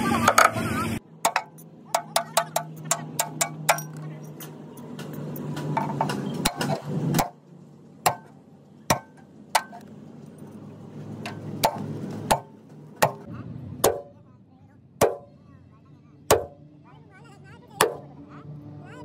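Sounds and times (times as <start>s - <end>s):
sharp metallic knocks and clinks: 1.2s - 7.4s.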